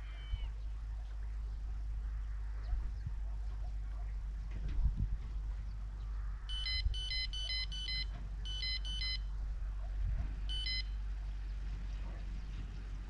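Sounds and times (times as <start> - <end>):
low steady rumble: 0.0 - 13.0
high electronic beeps: 6.5 - 9.2, 10.5 - 10.9.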